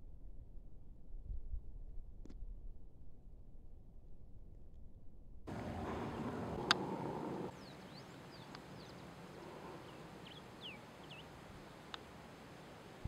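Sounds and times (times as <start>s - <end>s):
soft clicks: 5.5s - 7.5s, 8.4s - 8.8s, 11.8s - 12.1s
low steady hiss: 5.5s - 13.0s
small bird chirps: 5.6s - 11.3s.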